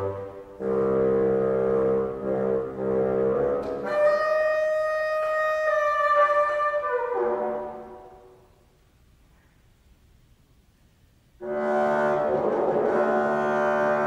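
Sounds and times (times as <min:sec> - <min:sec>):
bassoon playing sustained notes: 0:00.0 - 0:08.4, 0:11.4 - 0:14.0.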